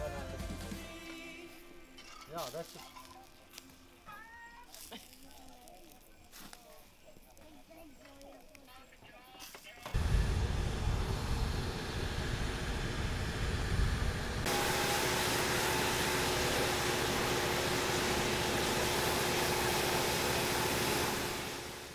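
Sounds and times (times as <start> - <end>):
low rumble: 10.0 - 14.5
pressure washer spraying water: 10.0 - 21.9.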